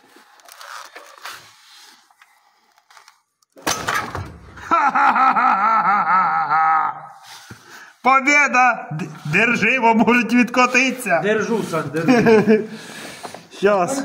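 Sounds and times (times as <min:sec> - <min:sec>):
man crying out: 0:04.7 - 0:07.2.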